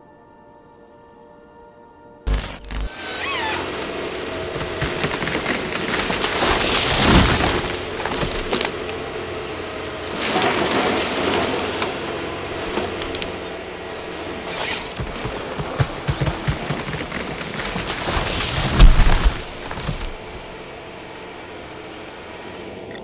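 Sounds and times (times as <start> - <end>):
tree branches cracking through brush: 2.3 - 21.0
harvester engine running: 2.3 - 23.0.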